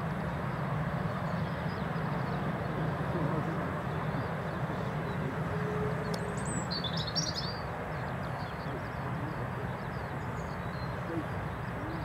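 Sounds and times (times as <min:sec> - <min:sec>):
jet engines rumbling: 0:00.0 - 0:12.0
bird chirping: 0:03.9 - 0:12.0.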